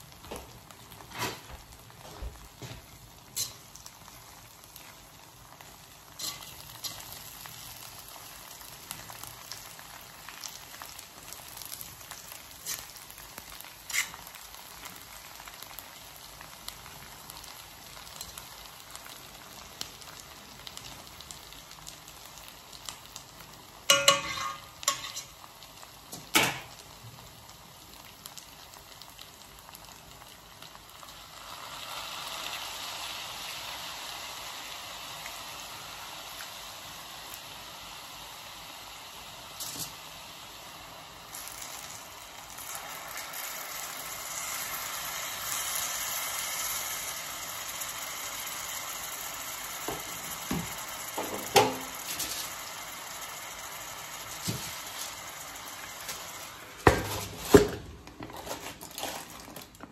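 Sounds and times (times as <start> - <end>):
rice sizzling in a wok: 0.0 - 59.9
spatula scraping and clattering wok: 2.6 - 3.9, 6.1 - 7.9, 11.4 - 14.8, 23.9 - 25.5, 39.6 - 40.0, 49.9 - 52.7, 56.0 - 59.5.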